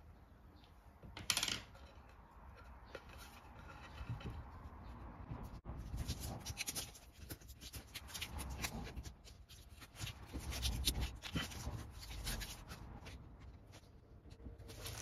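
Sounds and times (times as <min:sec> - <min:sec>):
vinyl peeling and crumpling: 0:05.8 - 0:15.0.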